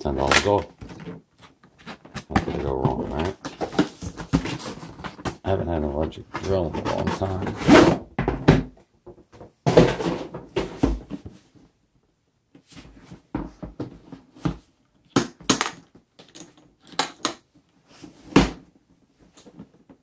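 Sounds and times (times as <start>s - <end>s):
plastic case knocking and scraping: 0.7s - 11.4s.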